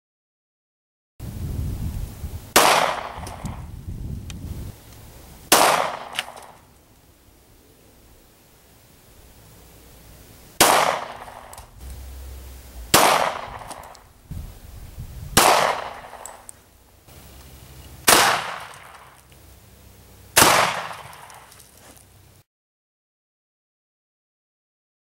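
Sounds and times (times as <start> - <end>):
shotgun shots: 2.6 - 3.7, 5.5 - 6.6, 10.6 - 11.7, 12.9 - 14.1, 15.3 - 16.5, 18.0 - 19.2, 20.4 - 21.5.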